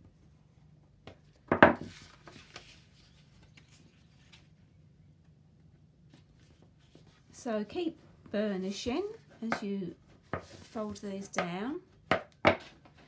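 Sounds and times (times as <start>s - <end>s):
card stock being folded: 1.8s - 4.5s.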